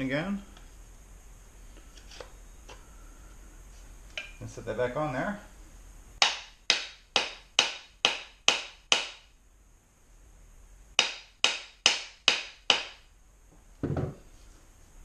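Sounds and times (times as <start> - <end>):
mallet knocking on wooden handle: 6.2 - 9.2.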